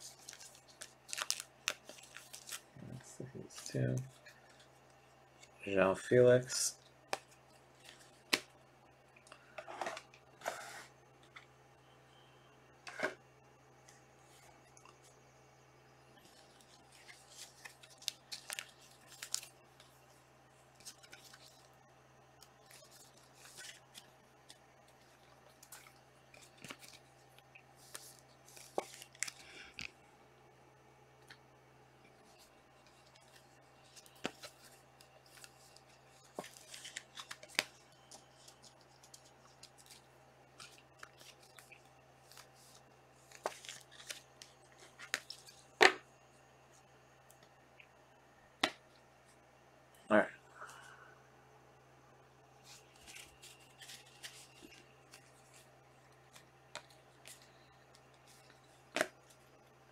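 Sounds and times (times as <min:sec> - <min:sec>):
cards rustling and clicking: 0:00.0 - 0:05.6, 0:16.2 - 0:20.0, 0:20.7 - 0:21.7, 0:22.4 - 0:30.0, 0:32.0 - 0:46.0, 0:52.6 - 0:59.6.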